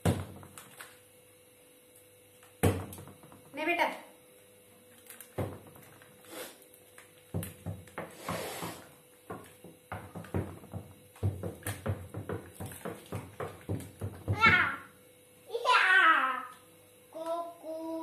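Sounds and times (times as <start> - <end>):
plastic packet crinkling: 4.9 - 7.3
knocks: 7.4 - 14.7.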